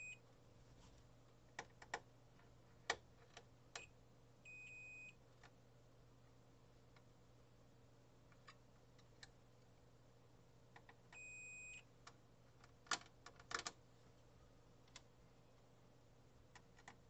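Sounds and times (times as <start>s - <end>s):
multimeter beep: 0.0s - 0.2s, 3.8s - 5.2s, 11.2s - 11.9s.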